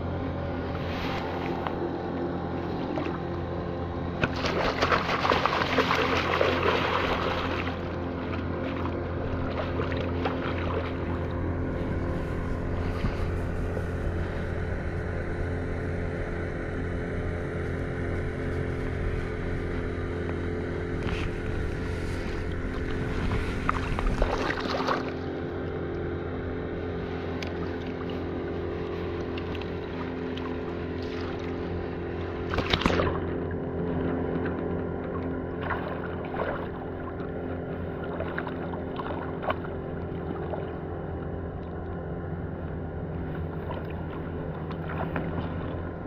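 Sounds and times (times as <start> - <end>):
low motor hum: 0.0 - 46.0
fish splashing at water surface: 4.2 - 7.8, 32.5 - 33.3.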